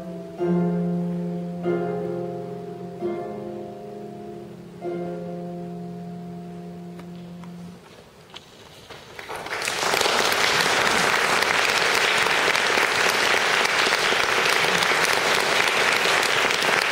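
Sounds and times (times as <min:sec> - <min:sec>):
audience applause: 0:09.0 - 0:16.9.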